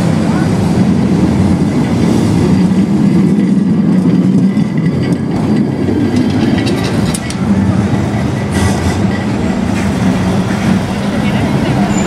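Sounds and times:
tram wheels rumbling on rails: 0.0 - 12.0.

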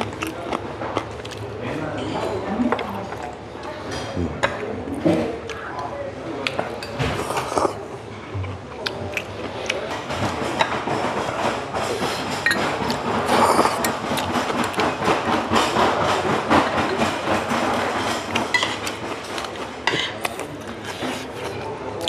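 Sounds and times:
chewing: 0.0 - 1.5, 6.4 - 7.8, 8.8 - 10.0, 12.9 - 14.9, 20.2 - 21.7
chopsticks and spoons clinking on dishes: 6.5 - 7.8, 9.1 - 22.0.

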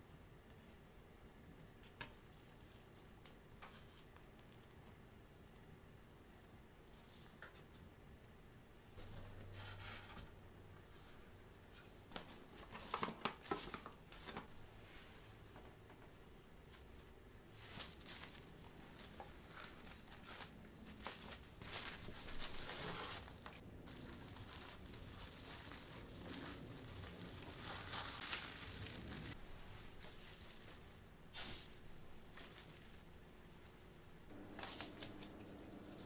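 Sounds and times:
cling film crinkling: 17.7 - 33.2.

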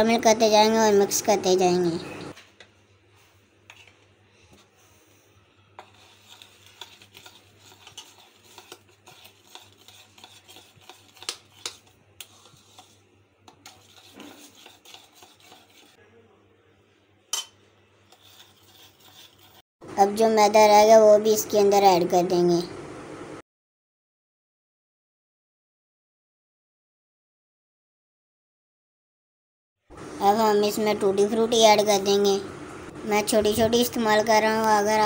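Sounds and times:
spoon scraping against bowl: 3.6 - 5.2, 5.8 - 16.0, 17.3 - 19.6
metal spoon stirring batter: 3.6 - 16.0, 17.3 - 19.6.

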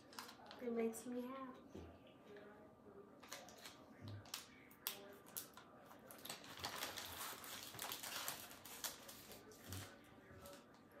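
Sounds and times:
packaging crinkling and rustling: 0.0 - 0.6, 3.2 - 10.9.

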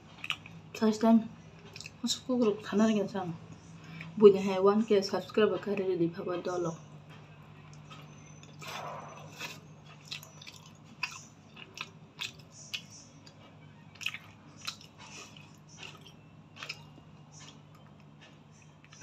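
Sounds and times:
person chewing noodles: 0.1 - 0.6, 1.6 - 2.0, 7.7 - 19.0.

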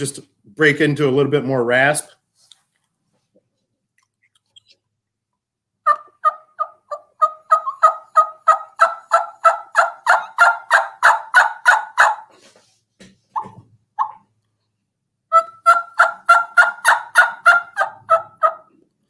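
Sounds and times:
turkey call yelps: 5.8 - 12.3, 13.4 - 14.3, 15.3 - 18.7.

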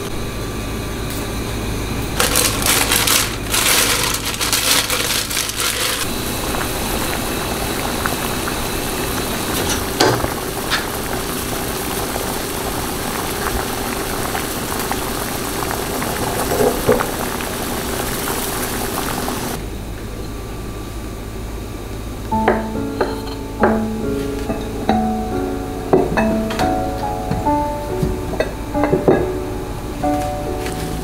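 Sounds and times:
soup boiling in a pot: 0.0 - 19.7.

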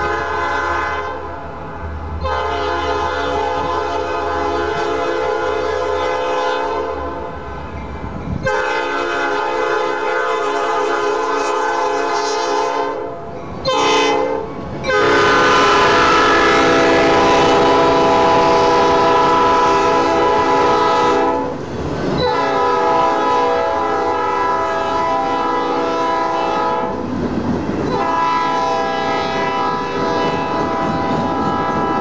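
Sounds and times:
locomotive air horn blasts: 0.0 - 1.4, 2.2 - 7.5, 8.4 - 21.6, 22.2 - 27.0, 27.9 - 32.0
train wheels clattering on rails: 26.9 - 32.0.

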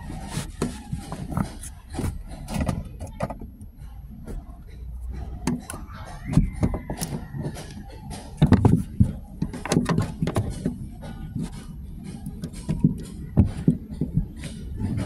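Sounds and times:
hands tapping plastic car trim: 5.4 - 10.8.

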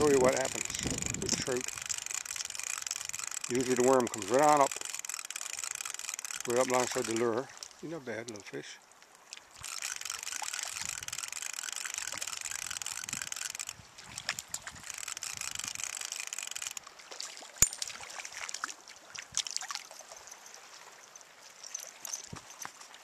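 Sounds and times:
fishing reel whirring: 0.0 - 7.5, 9.6 - 16.9
light clicks: 0.3 - 7.7, 9.3 - 16.9.

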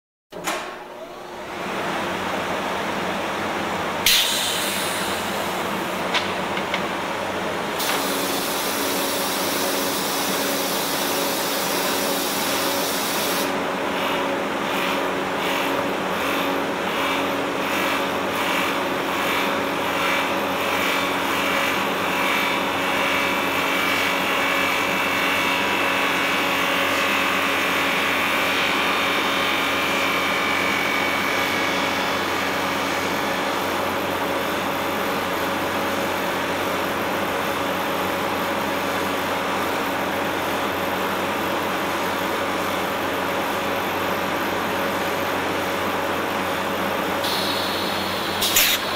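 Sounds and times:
pulsing hiss: 47.2 - 48.9.

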